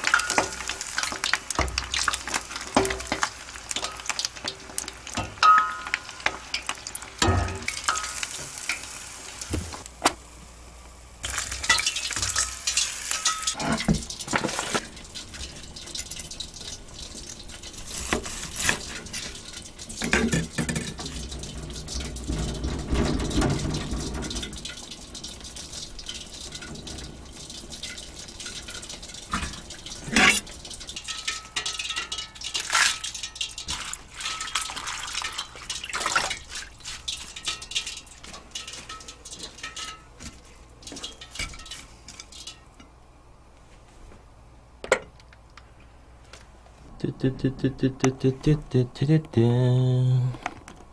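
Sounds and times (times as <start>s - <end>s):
water splashing and dripping: 11.4s - 42.7s.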